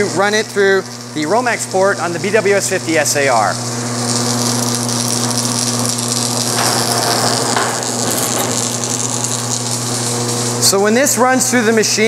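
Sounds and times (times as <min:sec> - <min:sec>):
wire stripping machine motor humming: 0:03.8 - 0:10.6.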